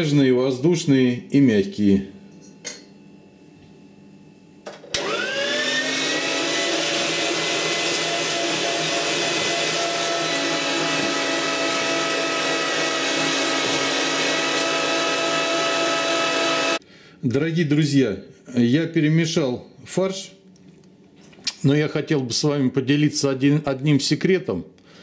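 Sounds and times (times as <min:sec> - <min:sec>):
meat grinder motor whining: 0:04.8 - 0:16.8.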